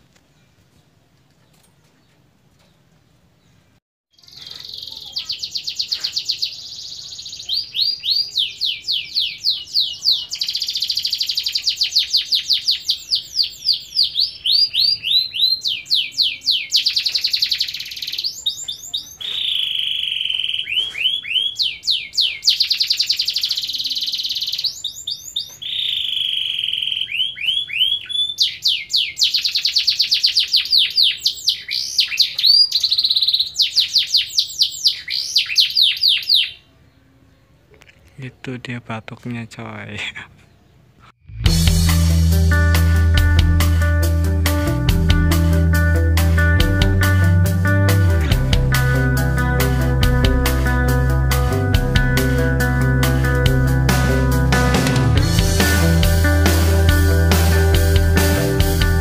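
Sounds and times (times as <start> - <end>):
canary singing trills: 4.1 - 38.5.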